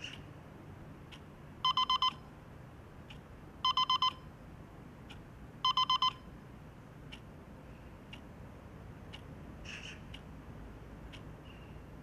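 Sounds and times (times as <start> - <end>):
alarm clock beeping: 1.6 - 2.3, 3.6 - 4.3, 5.6 - 6.3.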